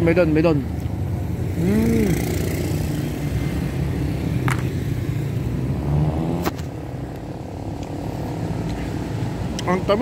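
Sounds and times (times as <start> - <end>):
vehicle engine rumbling: 0.0 - 10.0.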